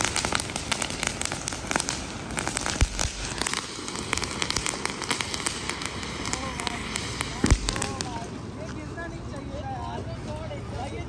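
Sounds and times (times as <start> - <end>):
firework bang: 0.0 - 8.5
firework crackling pops: 0.0 - 9.8.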